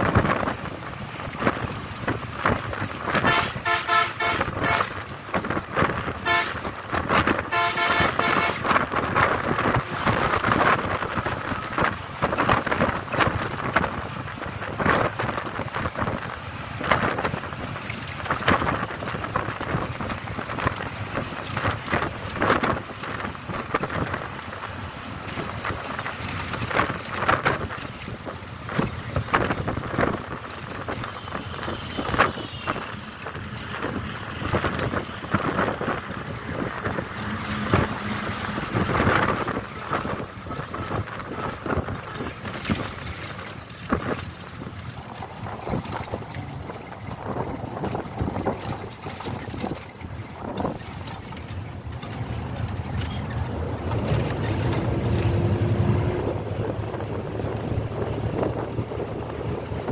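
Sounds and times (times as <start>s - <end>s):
road and wind noise inside vehicle: 0.0s - 59.9s
vehicle horn honking: 3.2s - 5.0s, 6.2s - 6.6s, 7.5s - 8.7s, 31.1s - 33.0s.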